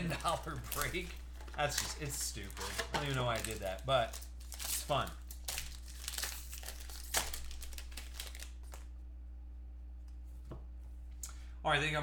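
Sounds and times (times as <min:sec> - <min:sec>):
plastic wrapper crinkling: 0:00.0 - 0:08.9
low electrical hum: 0:00.0 - 0:12.0.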